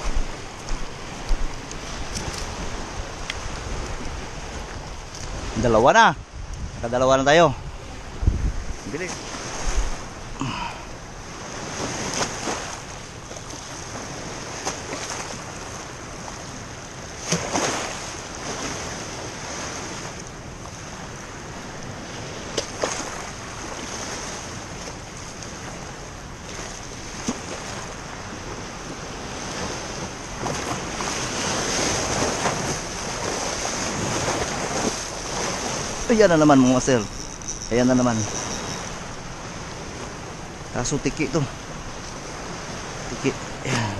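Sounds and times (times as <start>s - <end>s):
wind buffeting microphone: 0.0s - 10.4s
waves breaking on rocky shore: 0.0s - 43.9s.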